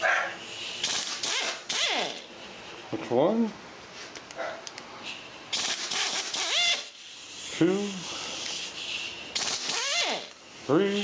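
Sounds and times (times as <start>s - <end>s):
air gun hiss and rattle: 0.3s - 2.9s, 4.0s - 11.0s.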